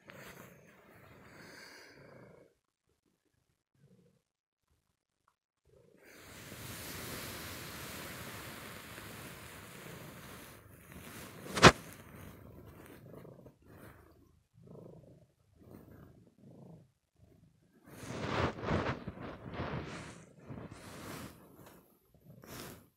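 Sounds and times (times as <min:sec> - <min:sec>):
blankets rustling on microphone: 0:10.2 - 0:13.4, 0:17.9 - 0:22.8.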